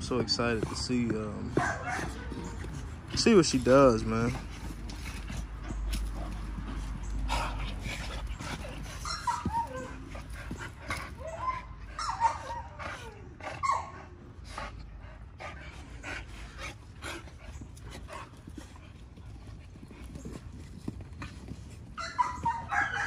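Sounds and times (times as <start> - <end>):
dogs scuffling on dirt: 0.0 - 12.3, 16.3 - 23.0
dog whines and yips: 8.8 - 10.6, 11.2 - 14.0, 22.0 - 23.0.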